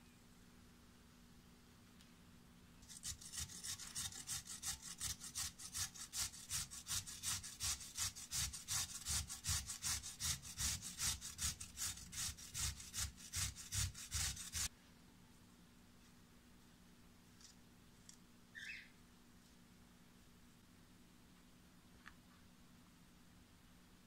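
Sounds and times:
carrot grated on metal grater: 0:02.8 - 0:14.7.

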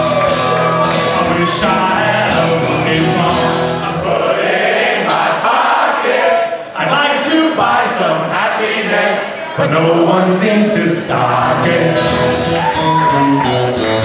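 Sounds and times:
acoustic guitar strumming: 0:00.0 - 0:06.0, 0:09.6 - 0:14.0
crowd singing along: 0:00.0 - 0:13.0.

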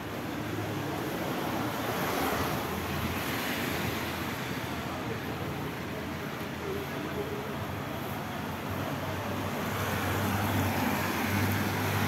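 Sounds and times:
tyres hissing on wet road: 0:08.0 - 0:12.0.

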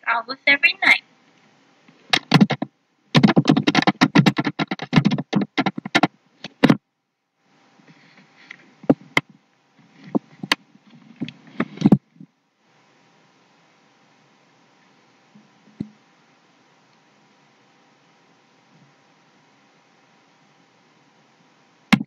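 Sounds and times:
computer keyboard typing: 0:02.1 - 0:06.8.

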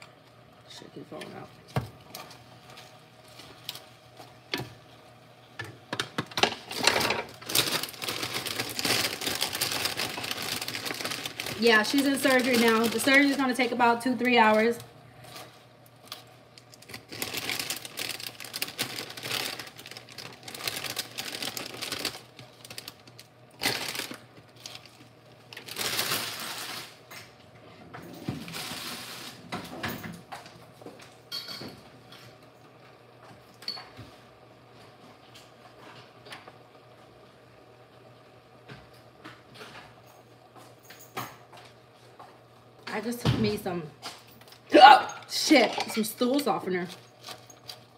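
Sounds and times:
plastic bag rustling: 0:06.6 - 0:27.1, 0:28.2 - 0:29.5
spinach leaves rustling: 0:25.6 - 0:27.0.

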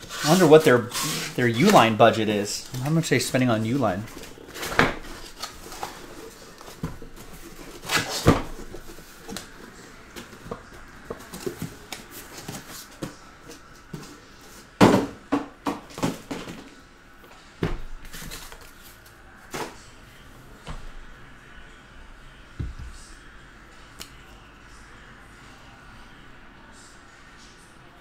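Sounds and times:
cardboard boxes scraping and rustling: 0:00.0 - 0:01.9, 0:04.1 - 0:13.0
boxes knocking down: 0:14.8 - 0:16.7.

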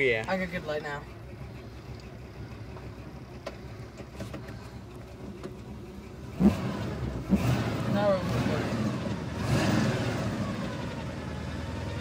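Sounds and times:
truck engine rumbling: 0:00.0 - 0:12.0.

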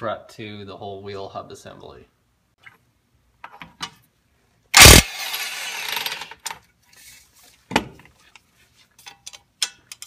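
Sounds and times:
impact wrench bursts: 0:04.7 - 0:06.5.

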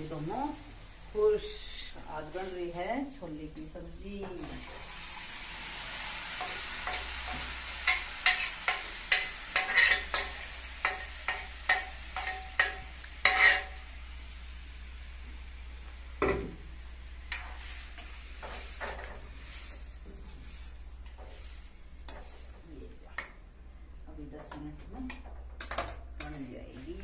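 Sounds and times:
curry sizzling in a pan: 0:00.0 - 0:23.3
spoon clinking and scraping pan: 0:06.4 - 0:13.8.

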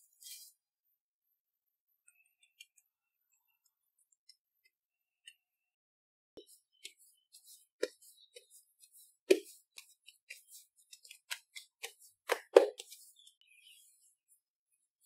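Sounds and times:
hands patting dough: 0:06.4 - 0:13.3.

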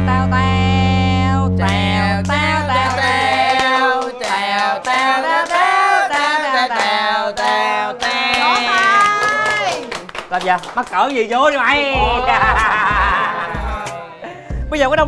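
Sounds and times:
held low notes: 0:00.0 - 0:03.6, 0:11.9 - 0:13.8
person singing a melody: 0:00.0 - 0:09.3.

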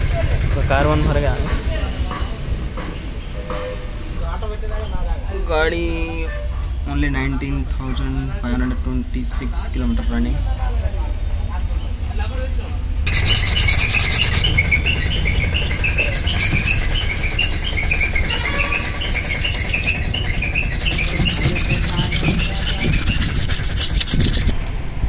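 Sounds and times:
rubbing strokes on metal: 0:13.1 - 0:14.5, 0:15.9 - 0:24.6.

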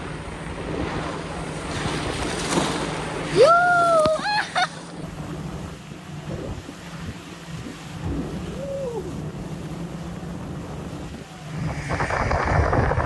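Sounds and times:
boat motor running: 0:00.0 - 0:13.0
water rushing along hull: 0:00.0 - 0:13.0
wind buffeting microphone: 0:06.1 - 0:13.0.

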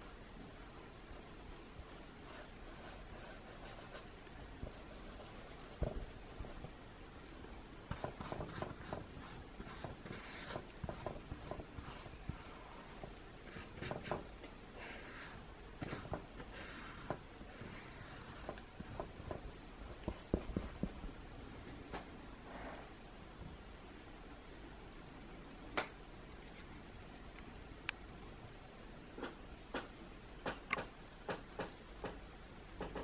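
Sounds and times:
paintbrush strokes on canvas: 0:00.0 - 0:06.8, 0:07.9 - 0:21.2.

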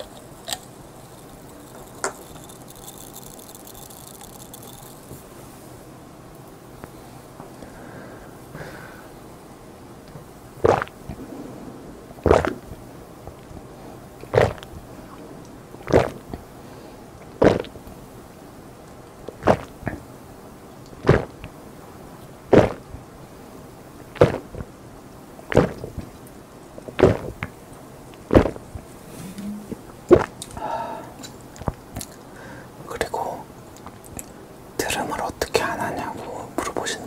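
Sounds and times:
person gulping soda: 0:10.6 - 0:11.2, 0:12.3 - 0:12.6, 0:14.2 - 0:14.6, 0:15.8 - 0:16.4, 0:17.4 - 0:17.8, 0:21.0 - 0:21.4, 0:24.2 - 0:24.6, 0:29.2 - 0:32.2.

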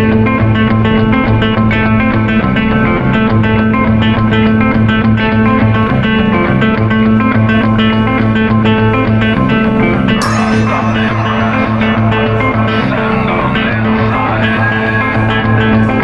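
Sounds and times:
plucked guitar notes: 0:00.0 - 0:16.0
sustained bass line: 0:10.2 - 0:16.0.

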